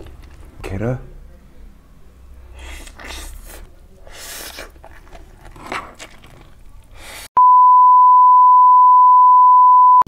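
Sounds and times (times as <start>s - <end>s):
man slurping noodles: 2.6s - 4.8s.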